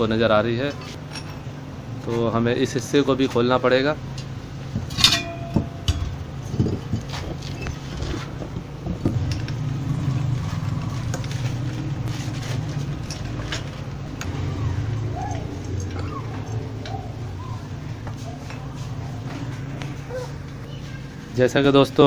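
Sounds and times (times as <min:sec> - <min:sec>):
spanner clinking on bolts: 0:00.6 - 0:01.6, 0:04.1 - 0:07.8, 0:08.9 - 0:17.2.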